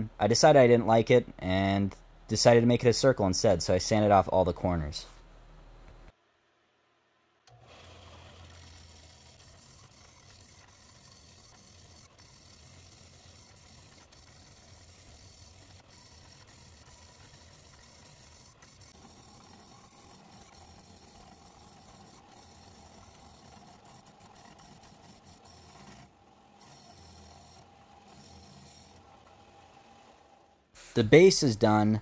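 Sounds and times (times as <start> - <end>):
belt and disc sander running: 7.5 - 30.4.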